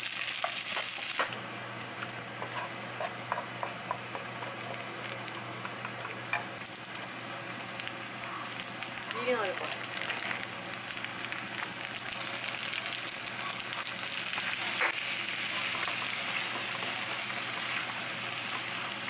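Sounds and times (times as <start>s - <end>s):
food sizzling in a pan: 0.0s - 1.3s, 6.6s - 19.0s.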